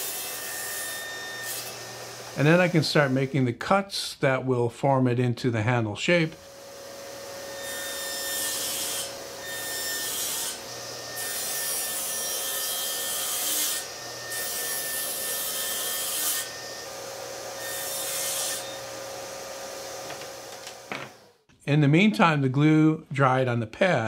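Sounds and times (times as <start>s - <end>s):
table saw motor humming: 0.0s - 2.8s, 6.4s - 21.4s
table saw cutting wood: 0.0s - 3.5s, 6.3s - 21.4s.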